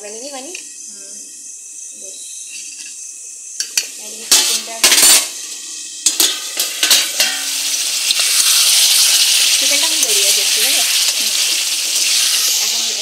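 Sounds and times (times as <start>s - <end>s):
frying sizzle: 0.0s - 13.0s
spoon and lid clanking on pots: 3.6s - 5.3s, 6.0s - 7.6s.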